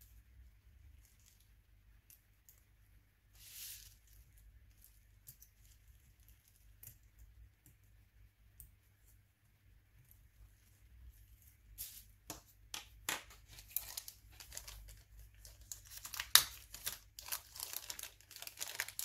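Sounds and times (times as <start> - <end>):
crinkling rustle: 13.4 - 19.0.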